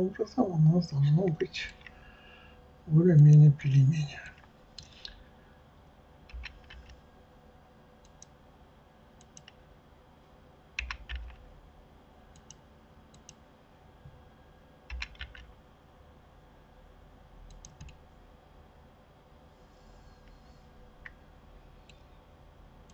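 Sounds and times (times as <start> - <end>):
faint steady hum: 0.0 - 22.9
keyboard keystrokes: 6.3 - 7.0, 10.8 - 11.4, 14.9 - 15.5, 17.5 - 18.0
mouse clicks: 8.0 - 8.3, 9.2 - 9.6, 12.3 - 13.4, 17.5 - 18.0.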